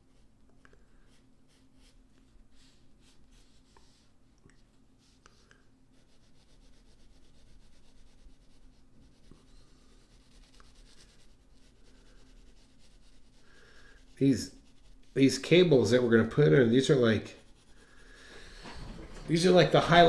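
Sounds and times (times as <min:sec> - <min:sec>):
pencil shading on paper: 0:05.0 - 0:16.0, 0:16.6 - 0:18.5.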